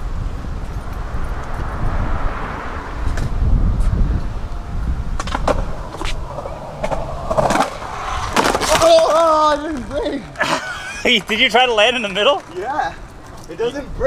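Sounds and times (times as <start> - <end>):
skateboard wheels rolling on concrete: 0.0 - 14.0
wheels clicking over pavement joints: 3.0 - 14.0.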